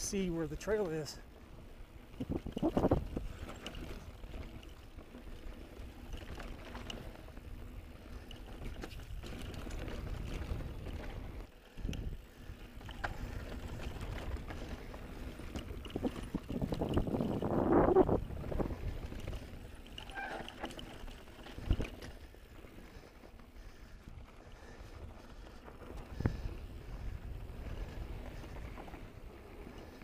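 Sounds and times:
bike rattling: 0.0 - 30.0
wind over microphone: 1.9 - 4.6, 8.4 - 20.6, 23.7 - 30.0.

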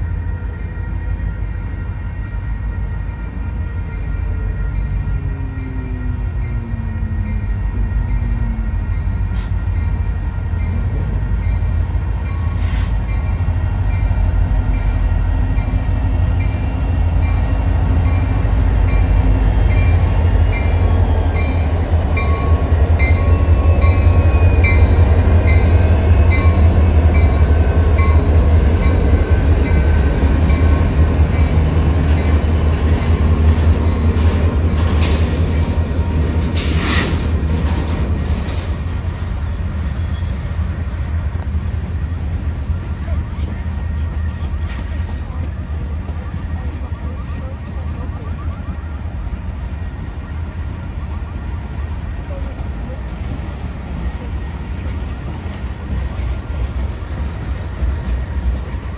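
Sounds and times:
crossing bell dinging: 0.0 - 34.9
diesel locomotives rumbling: 0.0 - 58.9.

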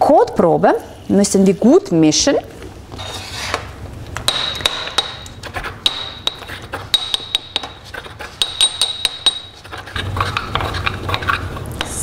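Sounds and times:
pestle knocking in porcelain mortar: 5.8 - 9.6.

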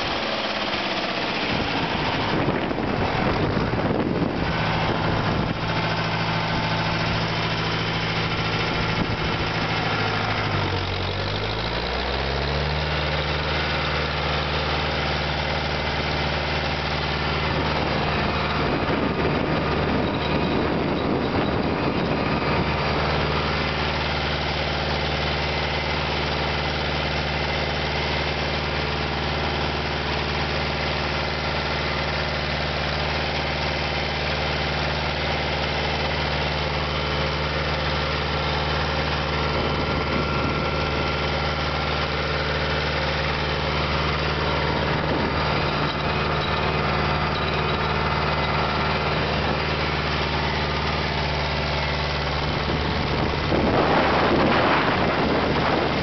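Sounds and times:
tractor diesel engine running: 0.0 - 56.0.

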